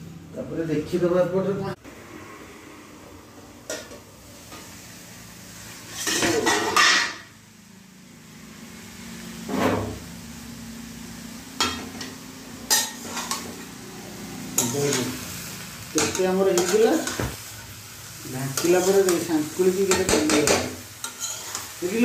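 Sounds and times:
ladle scraping metal pan: 0:05.9 - 0:07.2, 0:12.7 - 0:13.7, 0:20.0 - 0:21.7.

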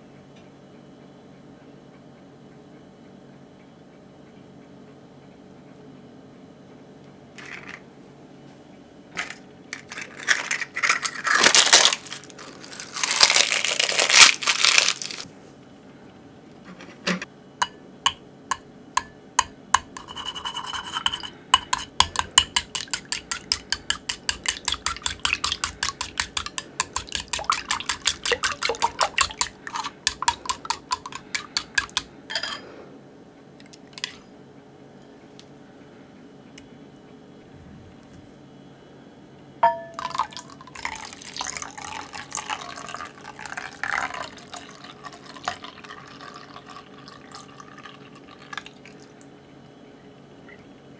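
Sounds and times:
rustling and scraping: 0:09.2 - 0:15.3, 0:16.6 - 0:17.3
chopsticks beating eggs in glass bowl: 0:17.6 - 0:32.1.

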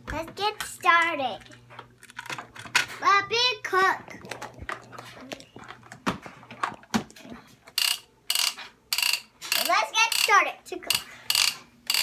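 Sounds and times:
plastic toy parts clicking and rattling: 0:00.6 - 0:03.0, 0:07.7 - 0:12.0
young child's voice: 0:02.9 - 0:04.3, 0:09.6 - 0:11.1.

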